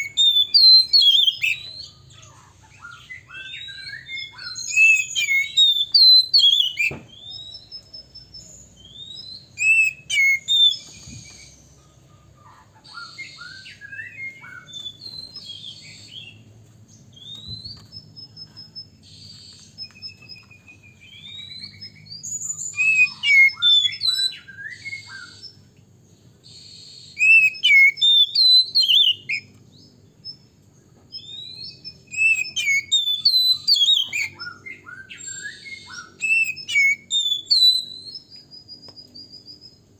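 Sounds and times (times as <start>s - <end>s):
bird singing whistles: 0.0s - 2.0s, 2.8s - 11.7s, 12.9s - 16.4s, 17.1s - 25.7s, 26.4s - 30.5s, 31.1s - 39.9s.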